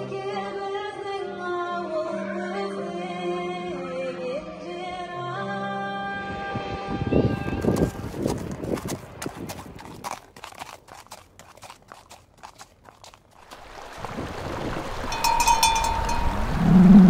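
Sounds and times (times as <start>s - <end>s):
horse hooves clip-clopping: 7.2s - 16.3s.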